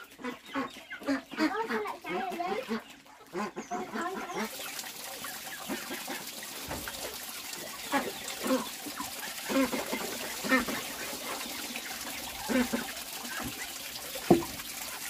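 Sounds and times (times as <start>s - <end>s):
chicken clucking: 0.0s - 14.6s
water splashing and pouring: 0.0s - 15.0s
metal pot being rinsed: 4.0s - 15.0s.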